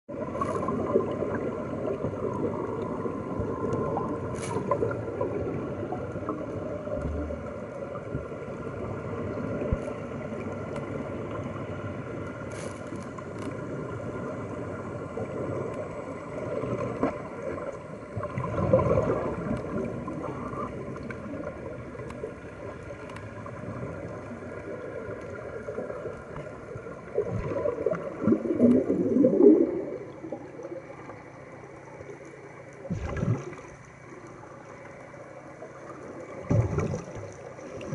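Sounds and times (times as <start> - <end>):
faint steady hum: 0.1 - 37.9
underwater gurgling water: 0.1 - 37.9
air bubbles: 18.2 - 21.4, 27.1 - 30.6, 32.9 - 33.8, 36.4 - 37.9.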